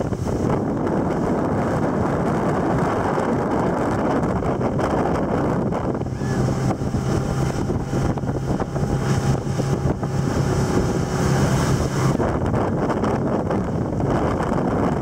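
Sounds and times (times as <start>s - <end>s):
motorboat engine drone: 0.0s - 15.0s
rush of boat wake: 0.0s - 15.0s
wind buffeting microphone: 0.0s - 15.0s.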